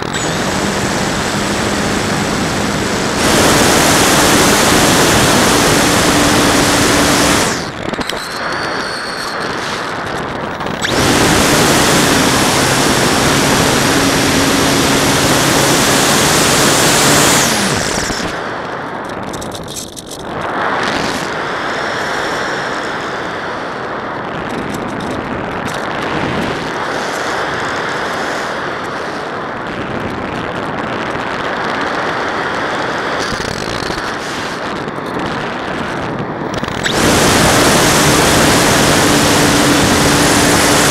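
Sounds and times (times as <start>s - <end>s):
electric motor and propeller: 0.0s - 40.9s
wind rush on microphone: 0.0s - 40.9s.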